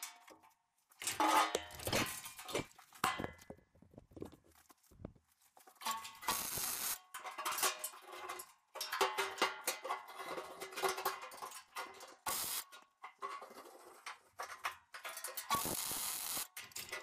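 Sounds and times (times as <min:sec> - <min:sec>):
welding arc crackle: 0:06.3 - 0:07.0, 0:12.3 - 0:12.6, 0:15.5 - 0:16.5.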